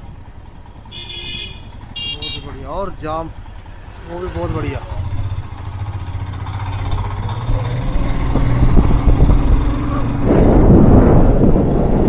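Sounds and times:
motorcycle engine running: 0:00.0 - 0:12.0
wind buffeting microphone: 0:04.6 - 0:12.0.

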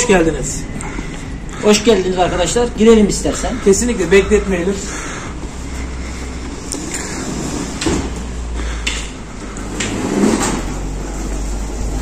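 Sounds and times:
steady low rumble: 0:00.0 - 0:12.0
automatic sliding doors opening: 0:06.4 - 0:12.0.

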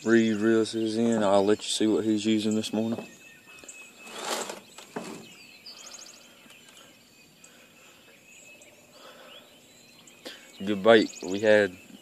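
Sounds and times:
birdsong chirps and trills: 0:00.0 - 0:12.0
brief rustling: 0:04.0 - 0:05.4.

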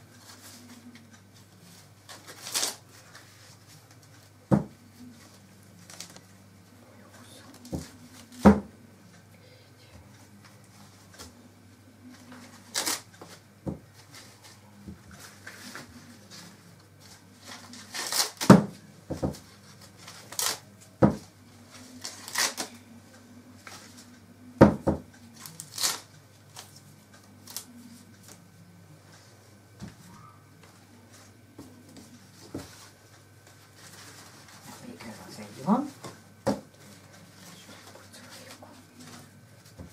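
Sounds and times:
faint low hum: 0:00.0 - 0:39.9
corn husks tearing and rustling: 0:00.2 - 0:04.1, 0:12.2 - 0:13.4, 0:15.2 - 0:18.5, 0:19.6 - 0:20.8, 0:21.7 - 0:22.8, 0:25.3 - 0:28.4.

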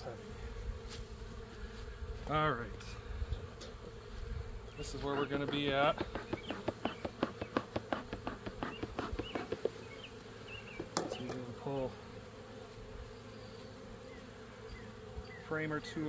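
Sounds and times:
bee flying past: 0:00.0 - 0:16.0
honey bees buzzing: 0:00.0 - 0:16.0
bee smoker bellows puffing: 0:00.5 - 0:12.2
sharp knock: 0:05.4 - 0:09.7.

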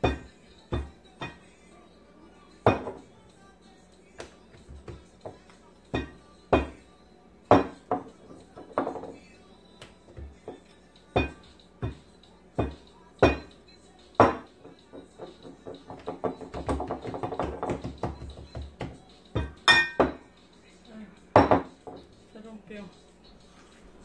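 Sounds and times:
glass bottle knocking on countertop: 0:00.0 - 0:01.4, 0:02.7 - 0:03.0, 0:06.0 - 0:06.8, 0:07.5 - 0:08.1, 0:08.7 - 0:09.2, 0:12.6 - 0:13.5, 0:14.2 - 0:20.2, 0:21.4 - 0:22.0.

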